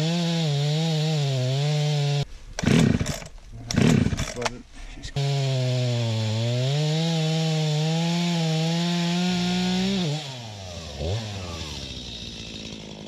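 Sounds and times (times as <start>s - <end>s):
chainsaw cutting a tree: 0.0s - 4.5s, 5.2s - 13.0s.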